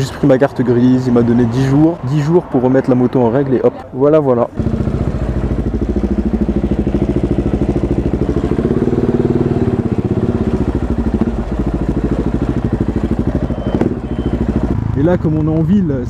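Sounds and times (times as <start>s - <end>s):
loud motorcycle exhaust beats: 4.6s - 16.0s.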